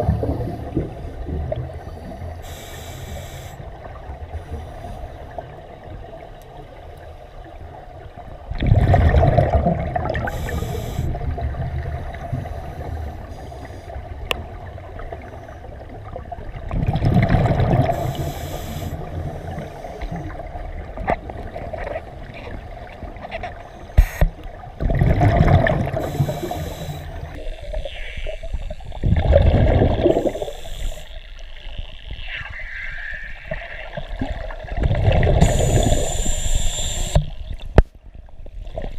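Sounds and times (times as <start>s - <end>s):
quiet regulator rush: 0.0s - 8.5s, 10.0s - 16.8s, 17.4s - 38.0s
exhaled bubbles rushing: 8.5s - 10.5s, 16.3s - 18.2s, 24.8s - 26.3s, 28.9s - 30.5s, 33.5s - 36.1s.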